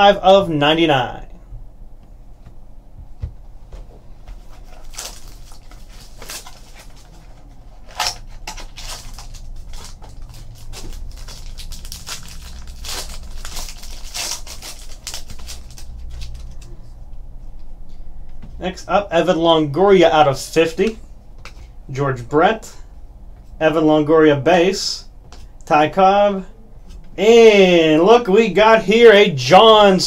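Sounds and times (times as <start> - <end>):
foil wrapper crinkling and tearing: 4.5 - 16.7.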